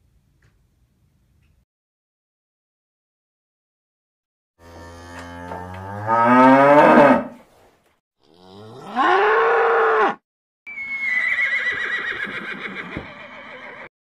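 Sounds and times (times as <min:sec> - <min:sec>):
bull bellowing: 0:04.6 - 0:07.4, 0:08.2 - 0:10.2
cow mooing: 0:04.6 - 0:07.4, 0:08.2 - 0:10.2
horse whinnying: 0:08.8 - 0:13.9.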